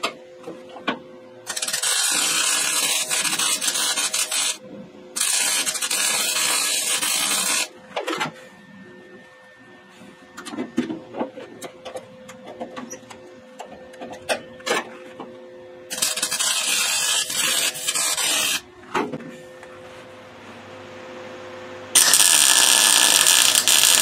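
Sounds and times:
welder crackling: 1.5 - 4.6, 5.2 - 7.7, 15.9 - 18.6, 22.0 - 24.0.

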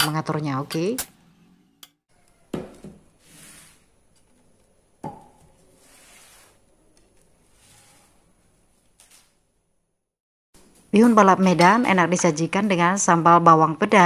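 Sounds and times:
plates knocking on table: 2.5 - 3.0.

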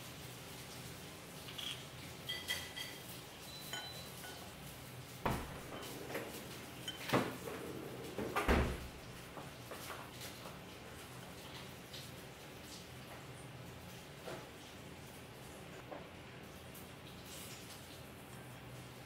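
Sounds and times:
glass clinking: 2.3 - 4.5, 5.3 - 8.1.

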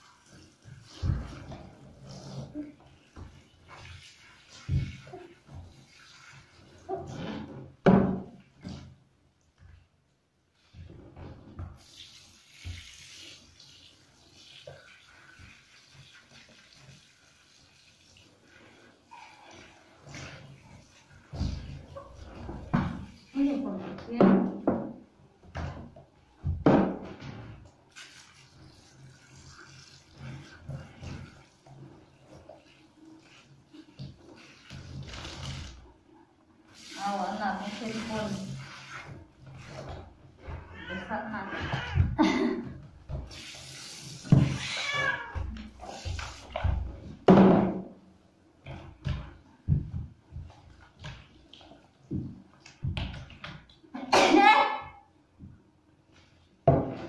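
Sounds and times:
shower spraying water: 0.0 - 7.2, 11.8 - 24.2, 27.9 - 36.0, 36.6 - 40.0, 43.1 - 47.0
shower head spraying water: 36.7 - 39.8
cat meowing: 44.4 - 45.6.

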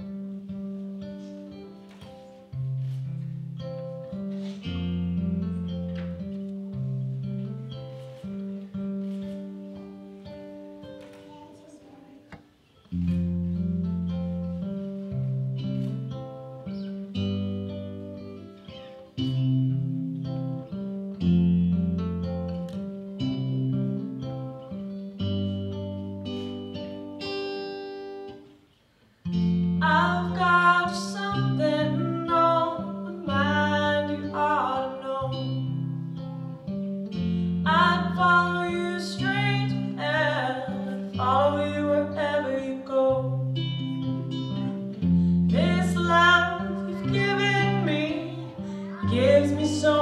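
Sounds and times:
acoustic guitars playing: 0.0 - 50.0
woman singing: 29.8 - 35.7, 37.6 - 44.8, 45.5 - 50.0.

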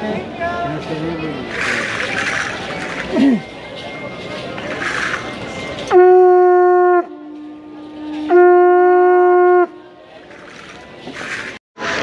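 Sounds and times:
conch shell trumpet blasts: 5.9 - 9.9.

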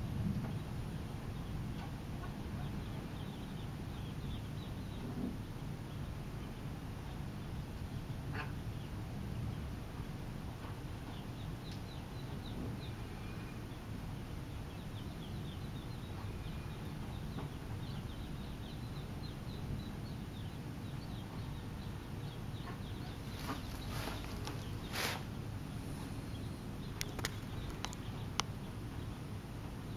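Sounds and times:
ducklings peeping: 1.3 - 29.9
sharp clicks: 27.0 - 28.5.

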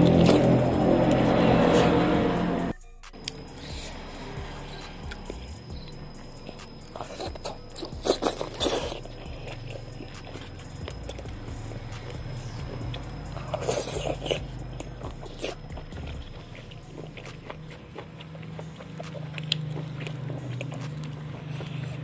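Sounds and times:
person chewing food: 0.0 - 2.4, 3.1 - 22.0.

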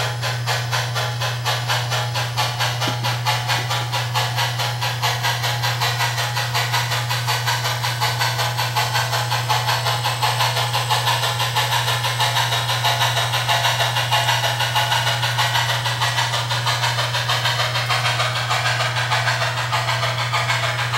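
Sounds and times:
steam exhaust chuffs from speaker: 0.0 - 20.9.

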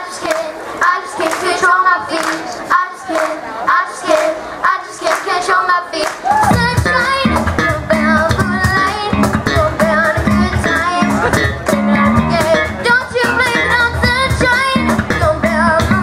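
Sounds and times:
person singing into microphone: 0.0 - 16.0
live band with guitar and bass: 6.2 - 16.0.

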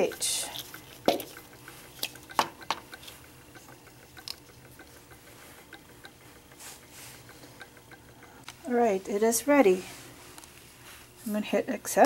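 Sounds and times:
stir bar ticking: 0.0 - 9.6.

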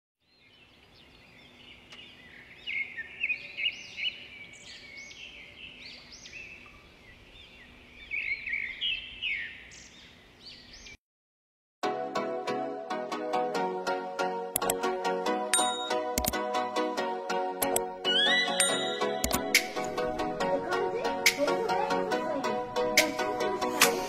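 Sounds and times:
birds chirping and singing: 0.3 - 11.0, 17.6 - 24.0.

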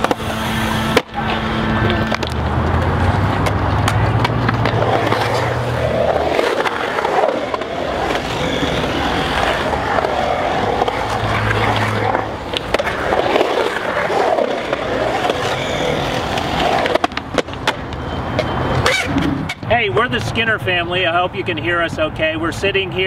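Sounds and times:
skateboard wheels rolling on concrete: 0.0 - 23.0.

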